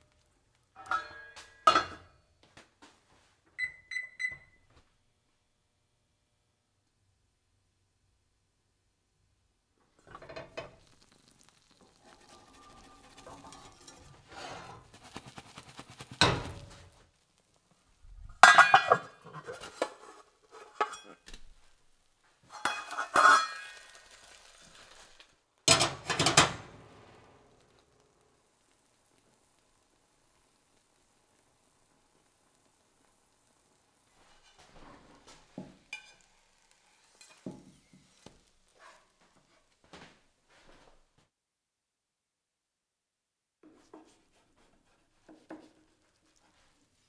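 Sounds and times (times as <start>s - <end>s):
metal pan lid clanking: 0.8s - 2.1s, 18.4s - 21.2s, 22.5s - 23.9s, 25.7s - 26.7s.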